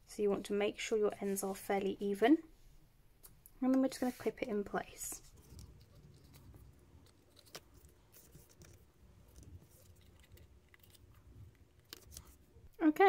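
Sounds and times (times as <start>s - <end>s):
paper rustling: 5.1s - 12.6s.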